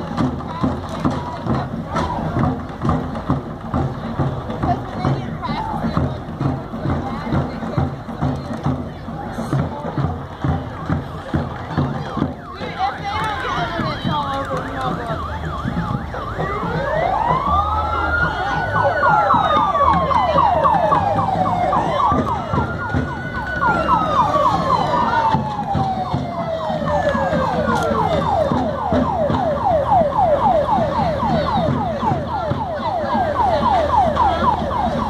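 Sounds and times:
siren wailing: 0:11.7 - 0:35.0
siren yelping: 0:12.4 - 0:35.0.

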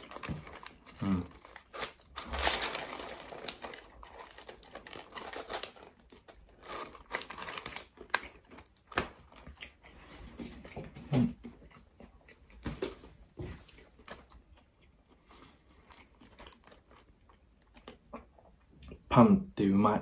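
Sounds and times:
paper wrapper crinkling: 0:00.0 - 0:09.4
person chewing bread roll: 0:00.0 - 0:19.1.

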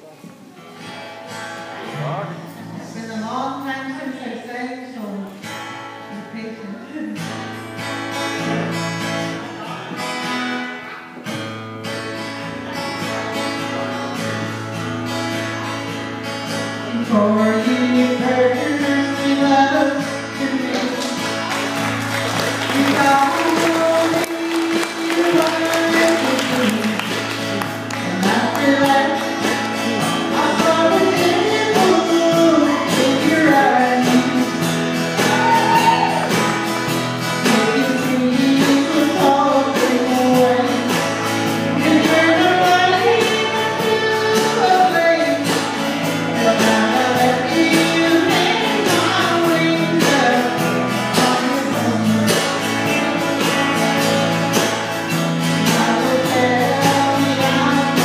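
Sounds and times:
acoustic and electric guitars: 0:00.0 - 0:58.0
woman singing: 0:16.8 - 0:21.3, 0:22.4 - 0:36.4, 0:37.4 - 0:53.1, 0:55.6 - 0:58.0
drum kit beat: 0:20.7 - 0:58.0.

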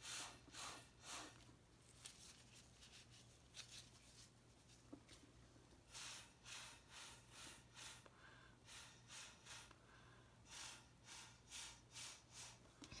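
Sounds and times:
breath puffs through a straw: 0:00.0 - 0:01.4, 0:05.9 - 0:13.0.

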